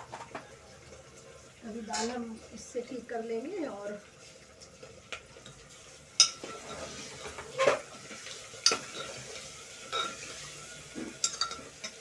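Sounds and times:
faint sizzle of frying: 0.0s - 12.0s
metal spoon clinking on pot: 6.2s - 7.4s, 9.9s - 10.2s, 11.2s - 12.0s.

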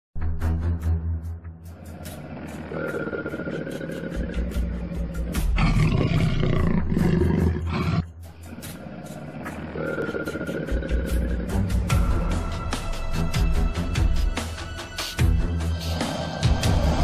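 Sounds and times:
background music with drone: 0.2s - 17.0s
big cat roaring: 1.9s - 12.1s.

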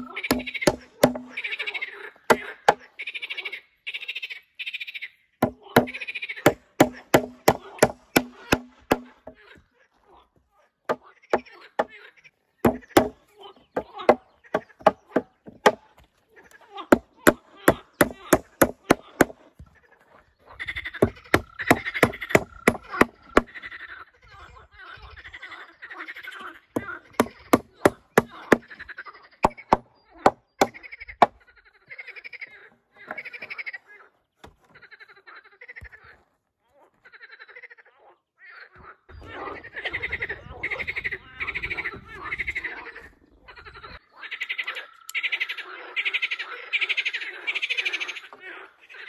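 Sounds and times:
hammer driving nails into wood: 0.0s - 1.4s, 5.4s - 9.4s, 12.6s - 13.2s, 13.8s - 15.8s, 16.9s - 19.4s, 21.0s - 23.5s, 26.8s - 28.7s
frogs croaking: 0.0s - 8.0s, 10.9s - 34.2s, 37.0s - 49.0s.

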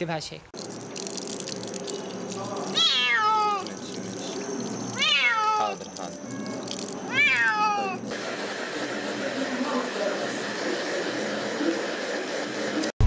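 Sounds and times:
running water at a sink: 0.6s - 12.9s
cat meowing: 2.7s - 3.8s, 4.9s - 8.0s.

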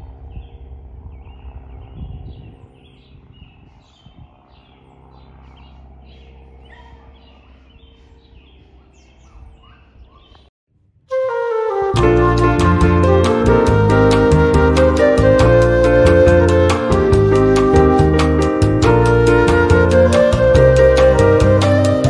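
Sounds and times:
low rumble: 0.0s - 9.7s
small birds chirping: 0.0s - 10.5s.

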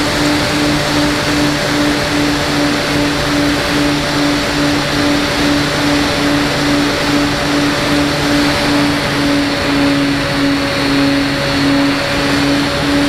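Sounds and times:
model aircraft motor humming: 0.0s - 13.0s.

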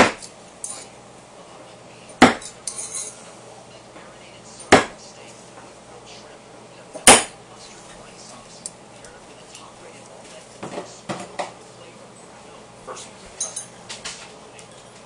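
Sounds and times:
knives striking wooden target: 0.0s - 0.3s, 2.2s - 2.5s, 4.7s - 5.0s, 7.1s - 7.3s
metallic clatter of knives: 0.6s - 0.9s, 2.4s - 3.2s, 13.4s - 15.0s.

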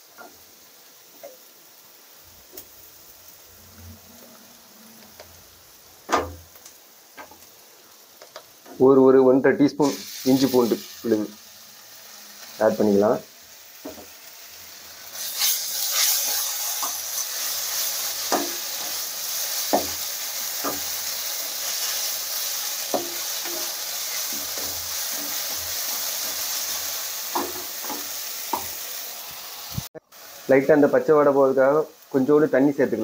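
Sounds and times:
paste sizzling in oil: 0.0s - 33.0s
spatula scraping pan: 15.2s - 28.8s.

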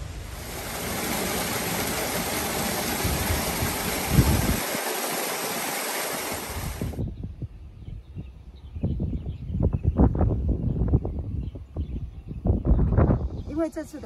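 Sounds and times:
water gushing from outlet: 0.0s - 7.0s.

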